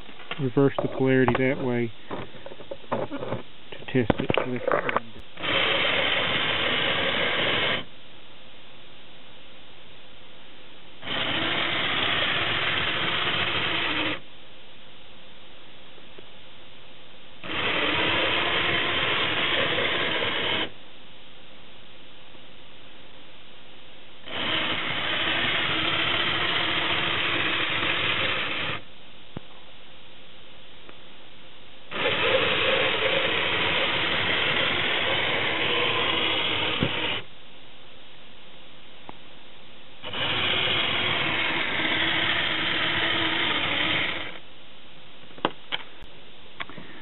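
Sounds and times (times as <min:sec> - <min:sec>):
toy motor whirring through gears: 0:24.3 - 0:28.8, 0:31.9 - 0:37.2, 0:40.0 - 0:44.4.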